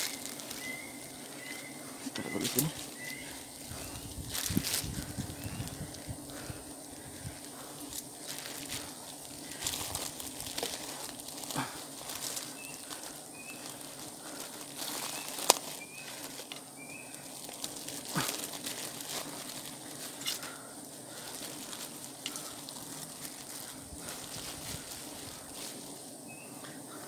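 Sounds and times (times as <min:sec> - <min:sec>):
bird chirps: 0:00.0 - 0:03.4
low hum of bees: 0:00.0 - 0:27.0
plastic bag and twigs rustling: 0:00.0 - 0:27.0.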